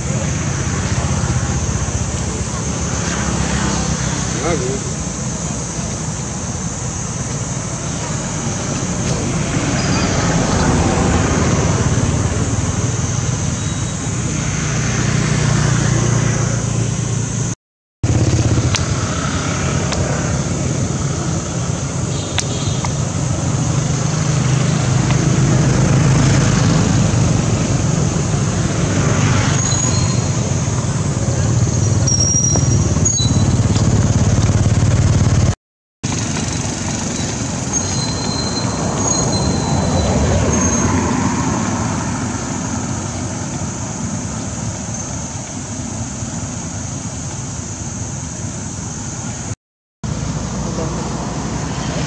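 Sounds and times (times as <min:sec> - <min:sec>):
steady high hiss: 0:00.0 - 0:17.6, 0:36.1 - 0:52.0
motor vehicle engines running: 0:00.0 - 0:52.0.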